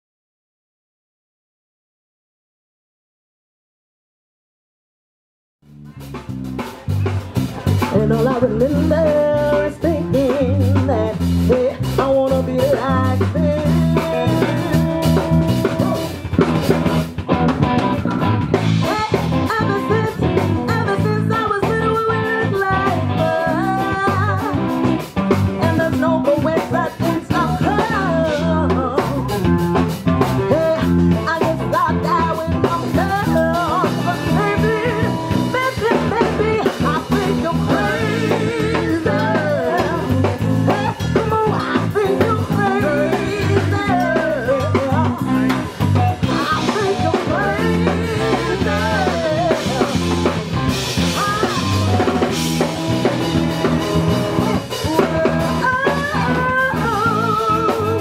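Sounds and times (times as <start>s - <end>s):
electric bass: 5.6s - 58.0s
drum kit: 5.7s - 58.0s
electric guitar: 5.8s - 58.0s
woman singing: 7.8s - 15.8s, 18.8s - 50.4s, 51.0s - 53.0s, 54.4s - 58.0s.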